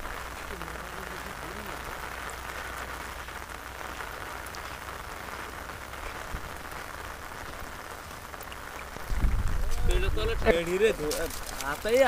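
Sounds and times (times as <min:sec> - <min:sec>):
water pattering: 0:00.0 - 0:12.0.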